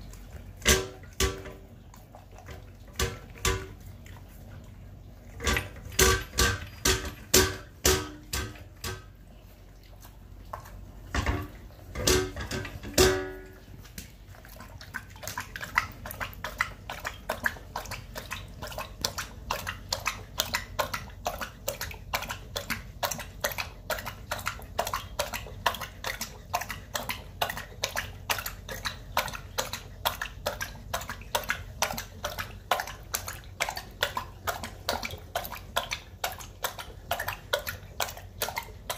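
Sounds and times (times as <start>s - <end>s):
dog lapping water: 0.0s - 38.9s
metal bowl clanking against stand: 0.6s - 1.6s, 2.9s - 3.8s, 5.4s - 9.2s, 11.1s - 13.6s.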